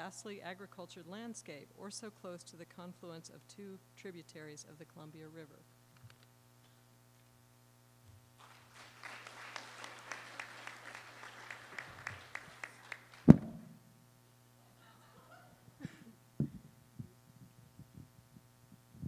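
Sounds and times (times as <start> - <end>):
audience applause: 8.4 - 13.3
soft knocks on microphone: 13.3 - 13.7
thump on microphone: 13.3 - 13.8, 16.4 - 17.1.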